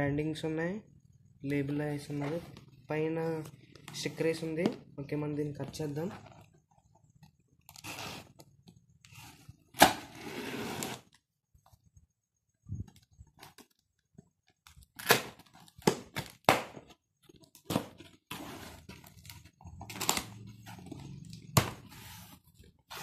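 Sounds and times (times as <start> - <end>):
scissors cutting packing tape: 17.7 - 20.4.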